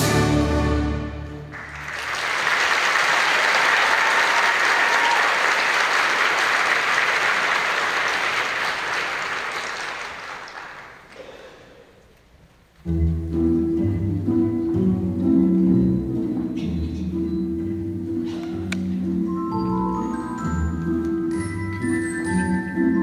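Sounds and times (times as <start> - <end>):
audience applauding: 1.5 - 11.3.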